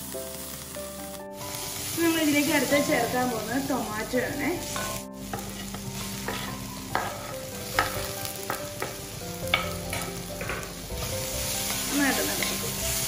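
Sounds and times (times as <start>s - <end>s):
food sizzling in a wok: 0.0s - 13.0s
spatula knocking and scraping pan: 4.2s - 13.0s.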